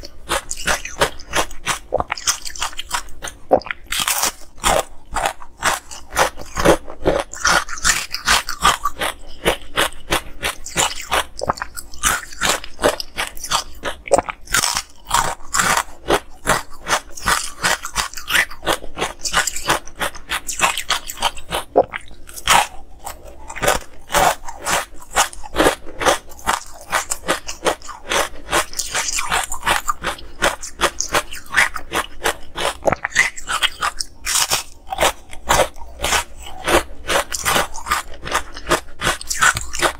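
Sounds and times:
ice crunching while chewed: 0:00.0 - 0:39.9.

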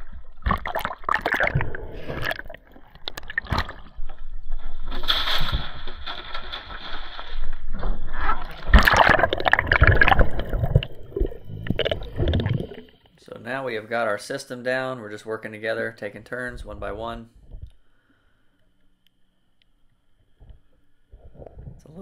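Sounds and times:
seawater sloshing and splashing: 0:08.5 - 0:13.0.

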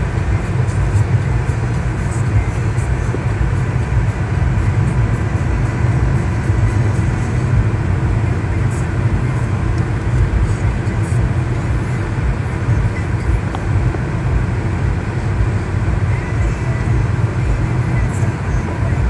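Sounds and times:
road rumble inside moving car: 0:00.0 - 0:19.0.

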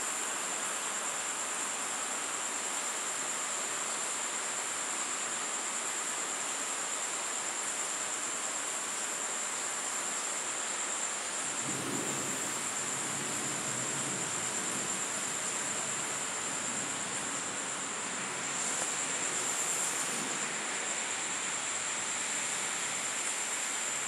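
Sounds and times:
insect trill: 0:00.0 - 0:24.0
rain hissing: 0:08.1 - 0:24.0.

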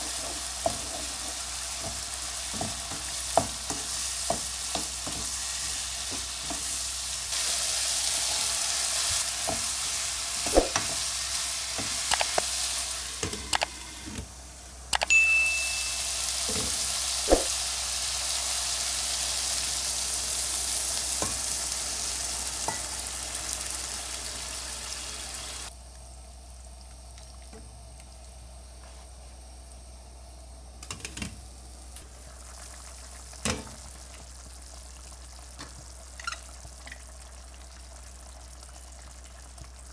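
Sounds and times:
meat sizzling in a pan: 0:00.0 - 0:13.2, 0:15.4 - 0:25.7, 0:31.6 - 0:39.9.

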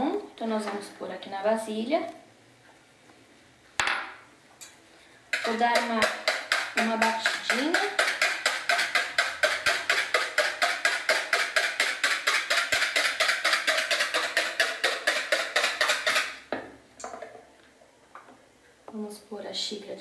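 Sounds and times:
wire whisk beating in plastic bowl: 0:05.3 - 0:16.4.

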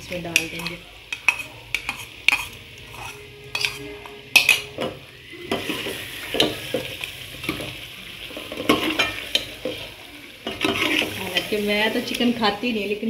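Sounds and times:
food sizzling: 0:00.0 - 0:13.0
spoon stirring food in a pot: 0:00.1 - 0:12.4
spoon clinking against metal pot: 0:00.3 - 0:06.8.

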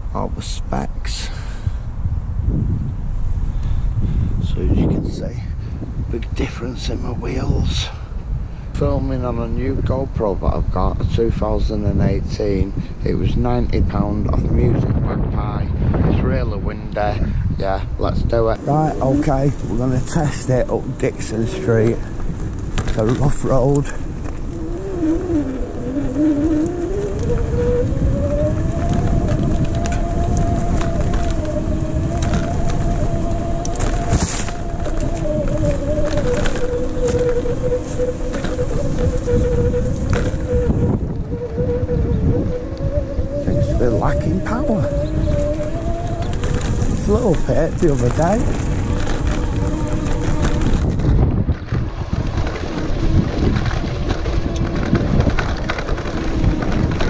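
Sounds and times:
wind on microphone: 0:00.0 - 0:57.0
bike rumbling on rough path: 0:01.3 - 0:57.0
electric hub motor whining: 0:18.0 - 0:57.0.

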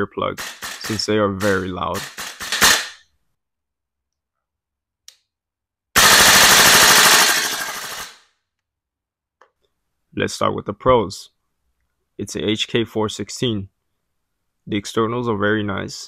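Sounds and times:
airsoft rifle full-auto burst: 0:00.4 - 0:03.0, 0:06.0 - 0:08.3.

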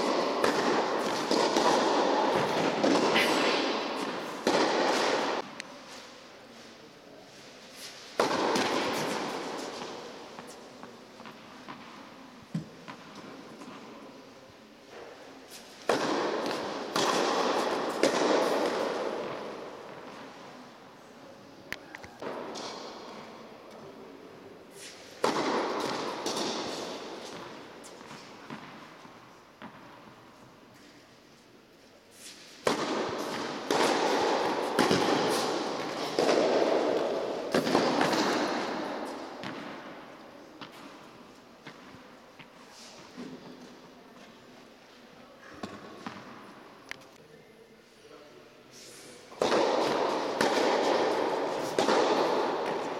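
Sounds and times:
sharp ball impacts echoing: 0:00.0 - 0:05.6, 0:08.1 - 0:14.0, 0:15.8 - 0:20.4, 0:25.2 - 0:30.1, 0:32.6 - 0:41.0, 0:49.3 - 0:52.9
tennis ball struck with racket: 0:00.0 - 0:05.6, 0:07.8 - 0:13.9, 0:15.0 - 0:20.3, 0:24.8 - 0:29.0, 0:32.3 - 0:41.0, 0:49.3 - 0:52.9.

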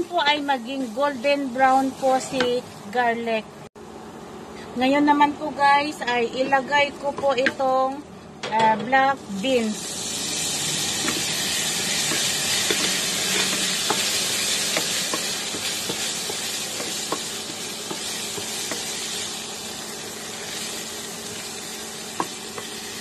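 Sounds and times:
food sizzling in hot oil: 0:00.0 - 0:03.2, 0:09.2 - 0:23.0
wooden spatula scraping a pan: 0:11.9 - 0:18.9.

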